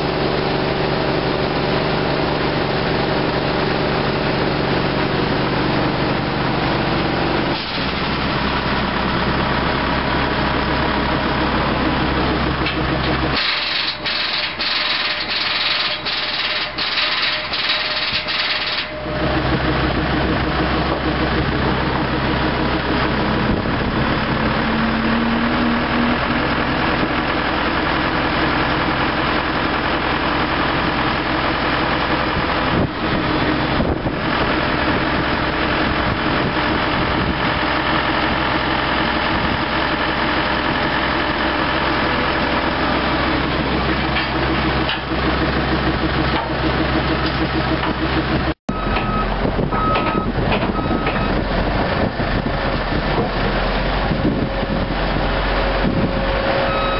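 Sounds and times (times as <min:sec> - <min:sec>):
heavy diesel engines running: 0:00.0 - 0:56.9
short high alarm beeps: 0:48.7 - 0:51.3, 0:56.6 - 0:56.9.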